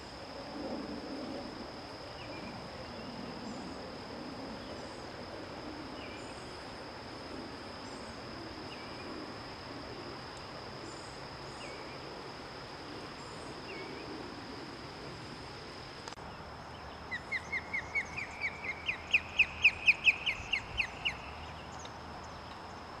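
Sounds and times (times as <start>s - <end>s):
osprey whistled calls: 17.1s - 21.5s.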